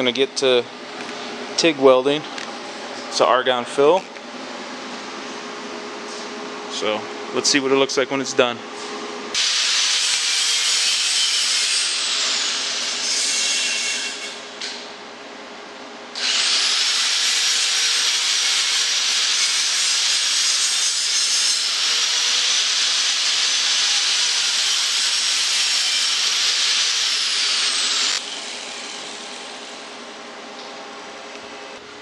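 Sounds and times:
welding arc hissing and whining: 9.4 - 14.4, 16.2 - 29.9.

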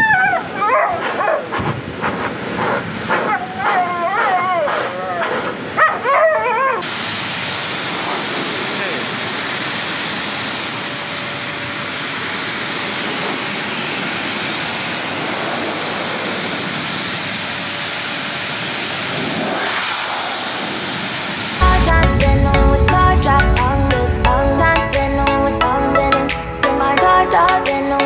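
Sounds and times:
pet grooming blower rushing air: 0.2 - 21.6.

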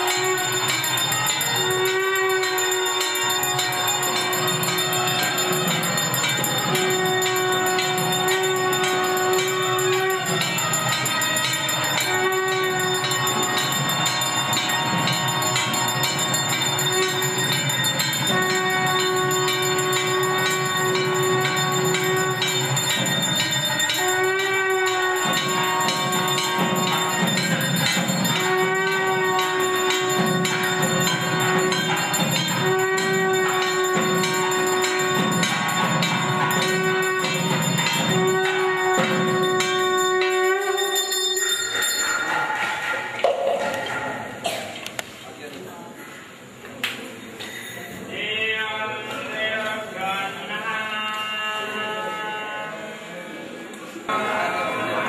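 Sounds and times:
wind instrument long notes: 0.0 - 44.0
brass hand bells ringing: 0.0 - 44.6.

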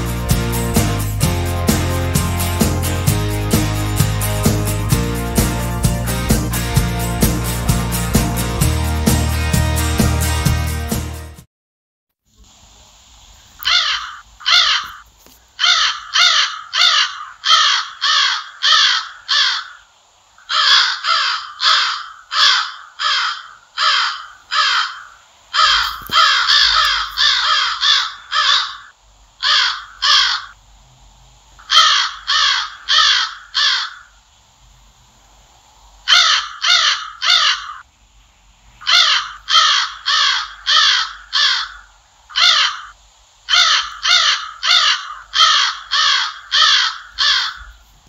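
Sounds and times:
crow cawing: 13.6 - 30.6, 31.6 - 34.2, 36.1 - 37.8, 38.8 - 47.8.

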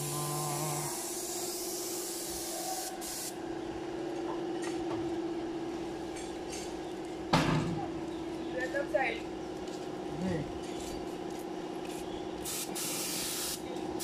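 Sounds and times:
motor hum: 0.0 - 1.5
paint spray gun hissing: 0.0 - 3.4, 12.4 - 13.6.

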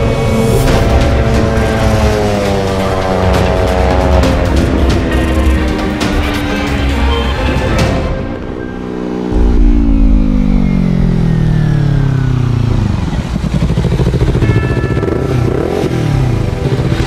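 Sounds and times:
motorcycle engine running: 9.3 - 17.0.

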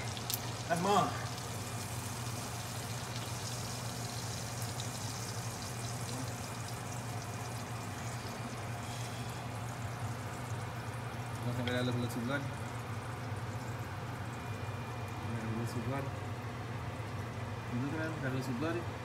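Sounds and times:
steak sizzling in a skillet: 0.0 - 10.4
low steady hum: 0.0 - 19.0.

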